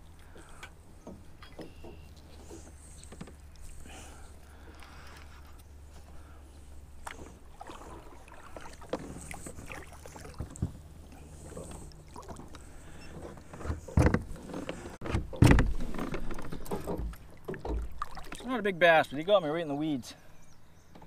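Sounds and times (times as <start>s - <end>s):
water sloshing: 0.0s - 19.3s
splashes: 7.0s - 13.0s, 16.3s - 18.6s
knocks against kayak hull: 15.0s - 17.9s.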